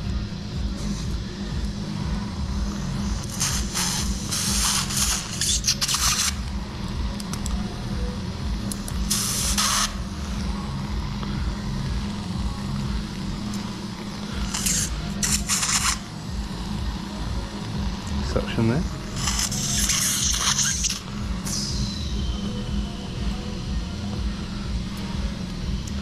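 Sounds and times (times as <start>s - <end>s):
steady low rumble: 0.0s - 26.0s
surgical suction hissing: 3.1s - 6.4s, 9.1s - 10.1s, 14.4s - 16.1s, 19.0s - 22.0s.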